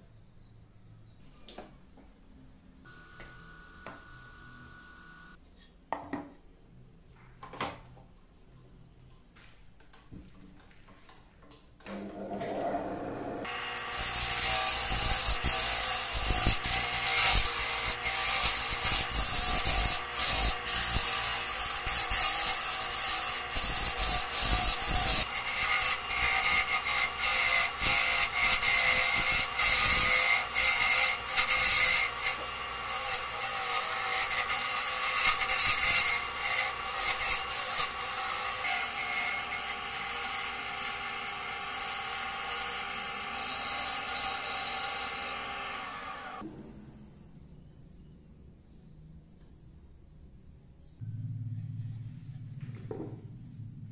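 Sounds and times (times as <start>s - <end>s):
tool scraping spinning wood: 11.9s - 46.4s
wood lathe starting up: 38.2s - 46.4s.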